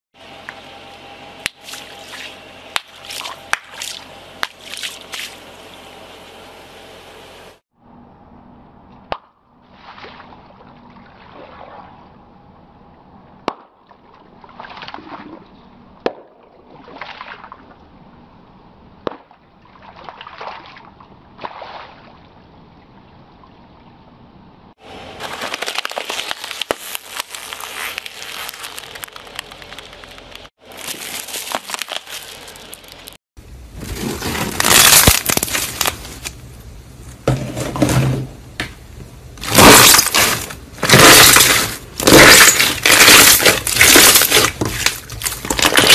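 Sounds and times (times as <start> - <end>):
liquid splashing: 1.6 - 5.5
tyre crushing brittle material: 25.0 - 36.4, 39.4 - 45.9
rubber gloves bursting: 25.2 - 36.4, 39.4 - 45.9.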